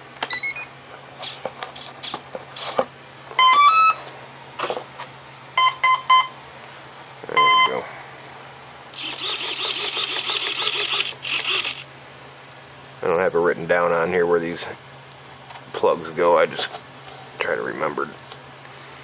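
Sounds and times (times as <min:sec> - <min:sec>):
short electronic beeps: 0:07.4 - 0:07.8
raspy motor buzz: 0:08.9 - 0:11.9.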